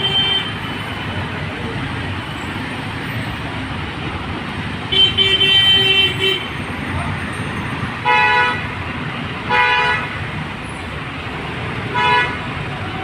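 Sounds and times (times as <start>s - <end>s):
road traffic noise: 0.0s - 13.0s
vehicle horn honking: 8.0s - 8.7s, 9.5s - 10.1s, 11.9s - 13.0s.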